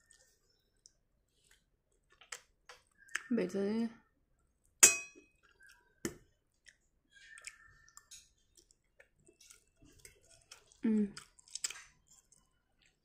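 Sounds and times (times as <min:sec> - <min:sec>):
chewing mouth sounds: 0:06.5 - 0:13.0.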